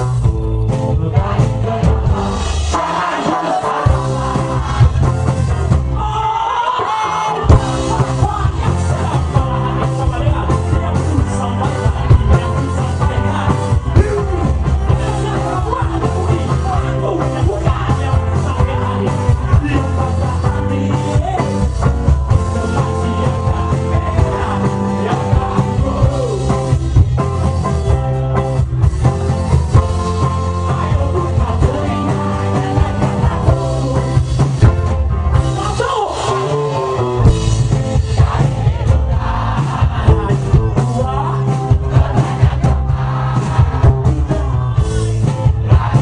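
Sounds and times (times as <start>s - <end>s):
lead singer vocals: 0.0s - 27.0s, 29.7s - 46.0s
rock band playing: 0.0s - 46.0s.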